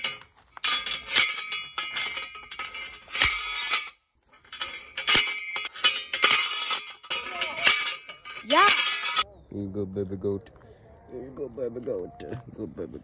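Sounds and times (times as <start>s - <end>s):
post driver clanging on steel post: 0.0s - 9.2s.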